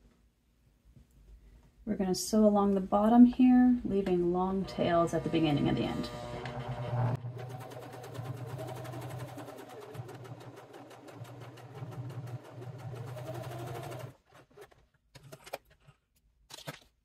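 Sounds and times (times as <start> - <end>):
sewing machine stitching: 4.7 - 15.6.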